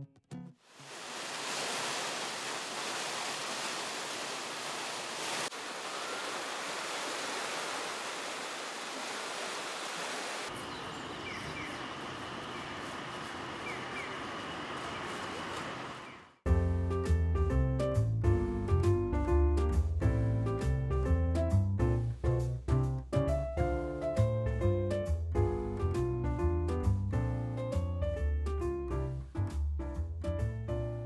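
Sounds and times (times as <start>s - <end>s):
water rushing down channels: 0.6s - 16.2s.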